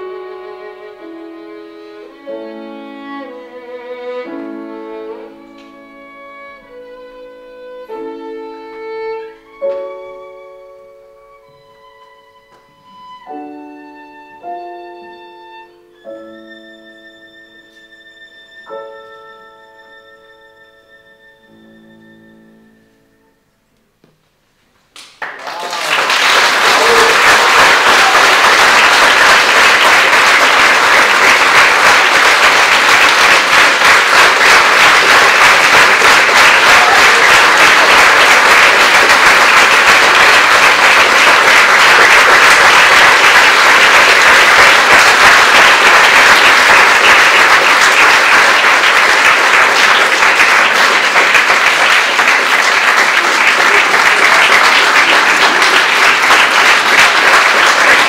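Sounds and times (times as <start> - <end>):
audience applauding: 25.0 - 58.0.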